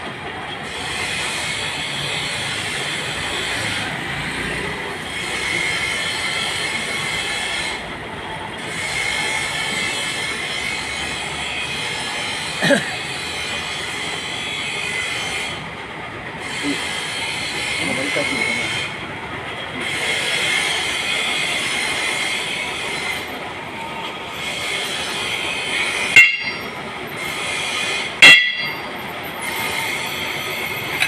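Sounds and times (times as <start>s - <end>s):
high whine: 22.6s - 31.0s.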